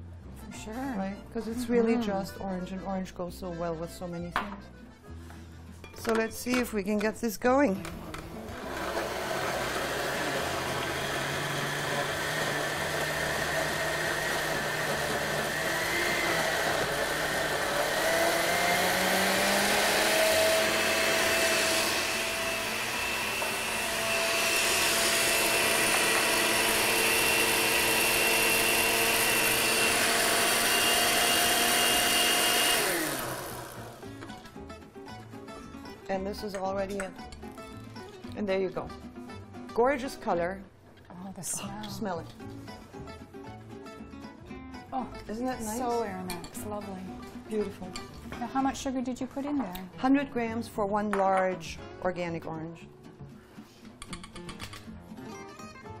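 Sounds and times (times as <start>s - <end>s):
blender whining: 8.4s - 34.2s.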